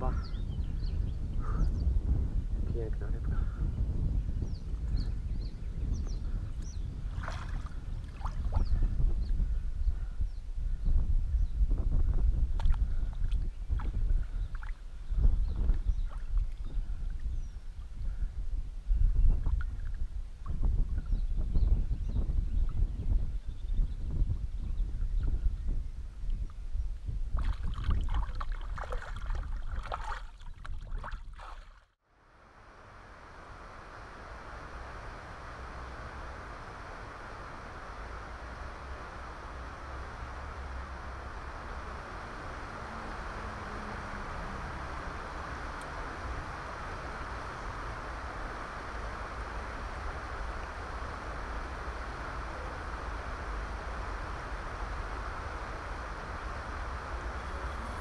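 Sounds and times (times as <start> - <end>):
wind rumble on microphone: 0.0 - 58.0
river water splashing: 7.1 - 8.6, 27.4 - 31.8.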